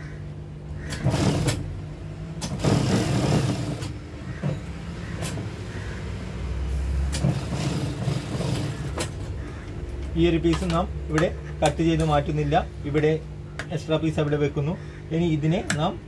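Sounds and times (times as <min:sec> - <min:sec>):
motor hum: 0:00.0 - 0:16.0
sewing machine stitching: 0:00.9 - 0:01.7, 0:02.4 - 0:03.9, 0:07.1 - 0:09.2.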